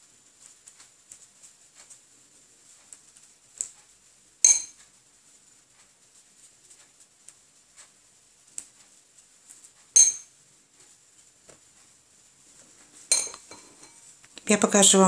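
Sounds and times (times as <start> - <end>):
faint brush ticks: 0.2 - 10.0
paintbrush clinking against glass bowl: 4.4 - 4.8, 10.0 - 10.3, 13.1 - 14.1.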